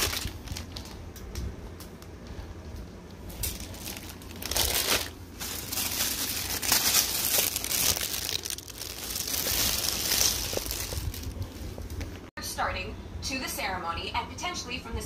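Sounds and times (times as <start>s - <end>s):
plastic bag crinkling: 0.0s - 1.0s, 3.2s - 12.0s.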